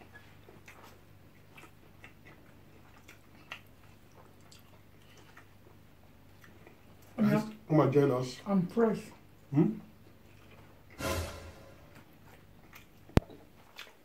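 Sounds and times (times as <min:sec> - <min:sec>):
chewing clicks: 0:00.1 - 0:07.2, 0:12.7 - 0:14.0.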